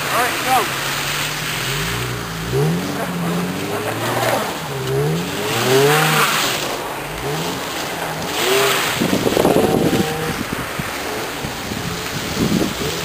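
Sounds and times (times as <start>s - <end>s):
car engine revving: 0.0s - 13.0s
tyres spinning in snow: 0.0s - 13.0s.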